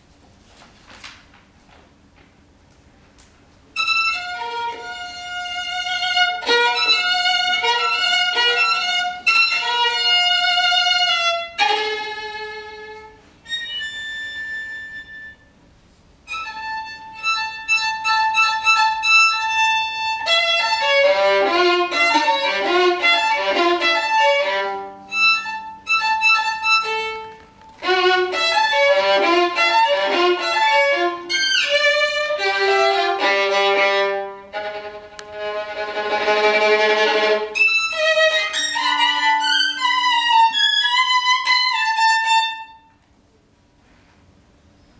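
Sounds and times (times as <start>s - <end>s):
solo violin playing: 3.8s - 15.5s, 16.2s - 43.0s.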